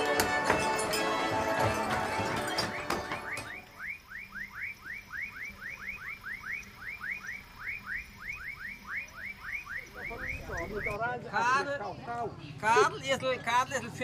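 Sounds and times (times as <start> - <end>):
frogs calling: 3.2 - 11.0.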